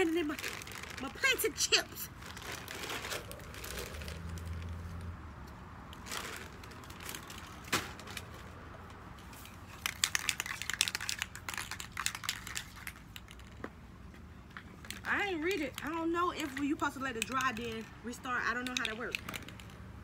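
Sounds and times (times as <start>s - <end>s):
crinkling handling noise: 0.0s - 17.9s, 18.7s - 19.9s
spray paint can rattling: 9.3s - 13.6s, 14.8s - 19.9s.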